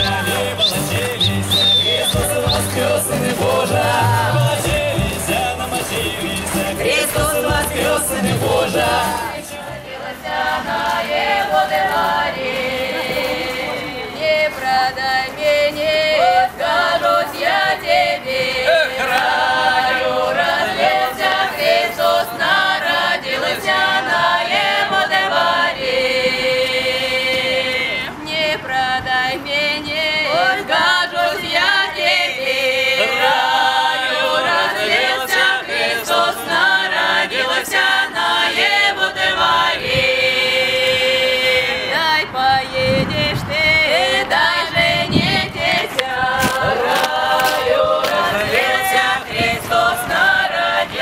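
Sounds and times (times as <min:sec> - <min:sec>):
folk vocal ensemble singing a cappella: 0:00.0 - 0:51.0.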